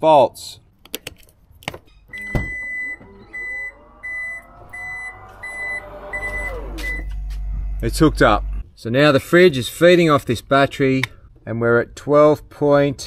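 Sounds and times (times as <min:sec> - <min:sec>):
high warning beeps: 0:02.1 - 0:08.1
tailgate motor whine: 0:02.1 - 0:08.7
low hum: 0:02.1 - 0:08.8.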